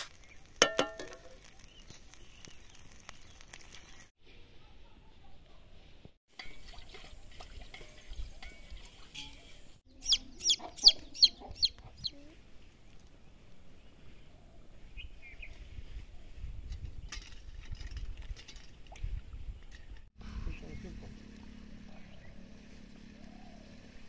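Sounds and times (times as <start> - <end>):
chicken clucking: 10.0 - 12.2.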